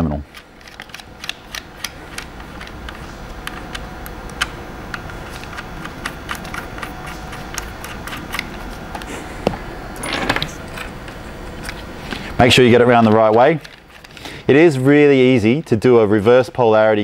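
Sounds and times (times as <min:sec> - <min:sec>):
low room hum: 0:00.0 - 0:17.0
cable terminals clicking and tapping: 0:00.3 - 0:09.6.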